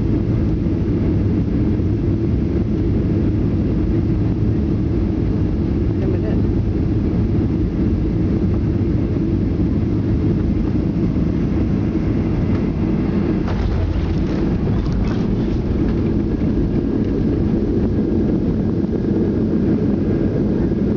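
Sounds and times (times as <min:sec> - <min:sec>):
jet engines and airflow rushing: 0:00.0 - 0:20.9
landing gear knocks and rattles: 0:13.4 - 0:17.2.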